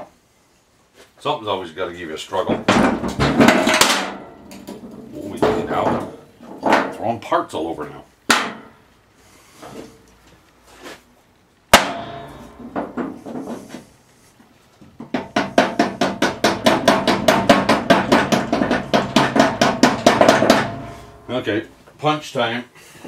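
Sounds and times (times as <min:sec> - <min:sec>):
sharp ringing metal clang: 0:11.8 - 0:12.7
hammer blows on metal: 0:15.1 - 0:21.5.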